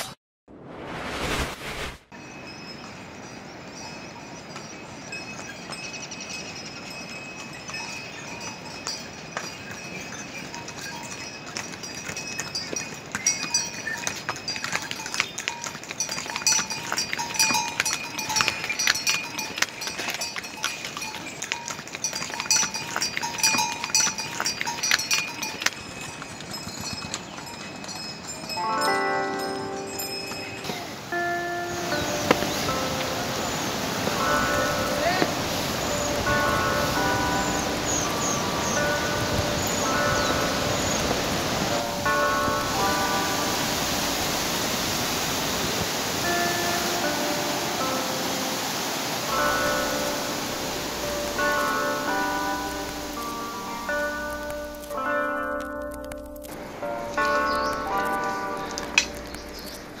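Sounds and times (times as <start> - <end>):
swishing transition effect: 0.0 - 2.2
bells ringing: 2.2 - 60.0
steady outdoor hiss: 2.2 - 60.0
hooves clopping on stone: 4.6 - 48.0, 48.8 - 60.0
background music: 28.6 - 40.1
small birds chirping: 29.9 - 41.8, 56.6 - 60.0.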